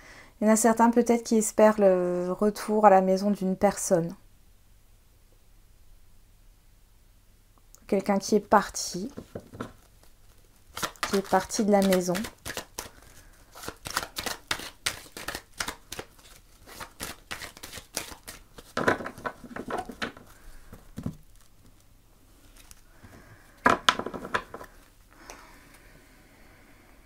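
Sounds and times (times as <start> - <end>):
cards being shuffled: 9.0 - 22.9.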